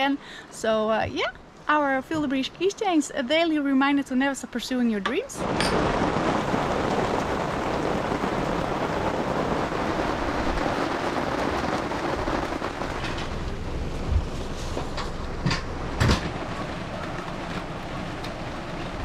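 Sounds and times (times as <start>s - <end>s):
rain pouring: 5.3s - 19.0s.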